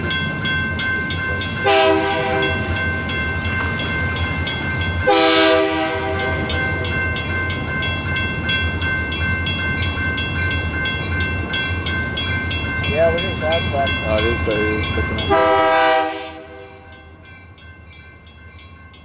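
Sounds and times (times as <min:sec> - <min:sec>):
crossing warning bell ringing: 0:00.0 - 0:19.0
locomotive air horn blasts: 0:01.6 - 0:02.7, 0:05.1 - 0:06.3, 0:15.3 - 0:16.6.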